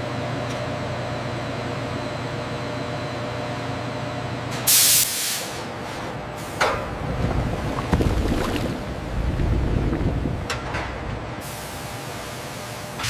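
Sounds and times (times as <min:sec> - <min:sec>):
churning bubbling chemical bath: 0:06.6 - 0:10.5.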